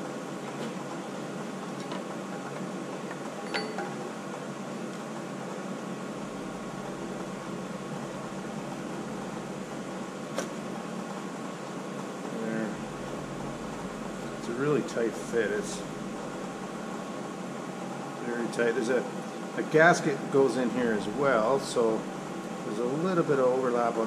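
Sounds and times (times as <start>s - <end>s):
steady background hum: 0.0s - 24.0s.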